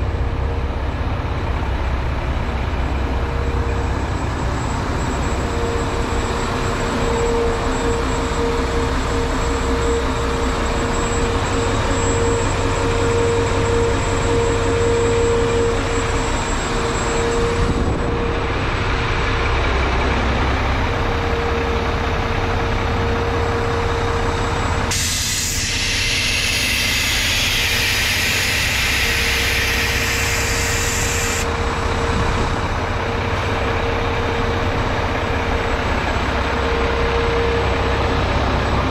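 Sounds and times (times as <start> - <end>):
constant whine: 0.0 - 38.9
diesel truck engine running: 0.0 - 38.9
loud air hiss: 24.8 - 31.6.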